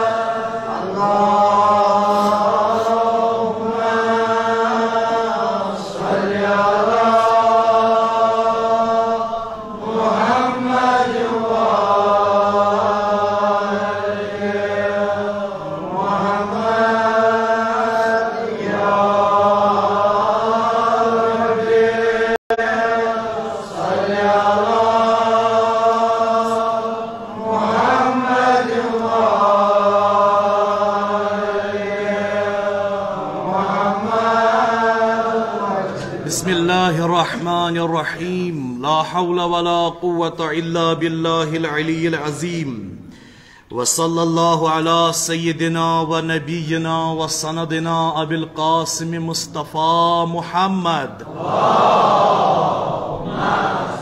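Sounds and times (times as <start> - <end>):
man chanting a prayer: 0.0 - 7.6, 35.2 - 43.0, 43.7 - 51.3.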